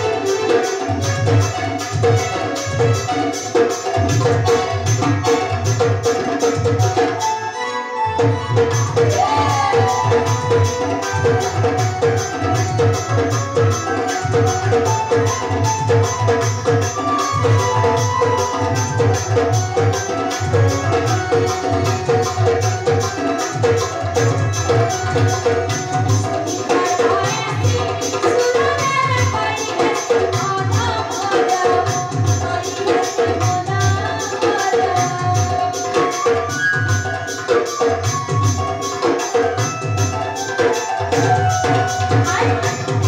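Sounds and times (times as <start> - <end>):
hand drum fast beat: 0.0 - 7.4, 8.2 - 43.0
woman singing: 7.6 - 36.6, 41.1 - 43.0.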